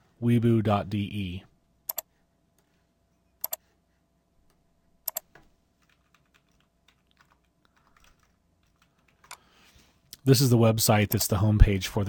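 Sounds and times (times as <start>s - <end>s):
typing on computer keyboard: 5.1s - 9.5s.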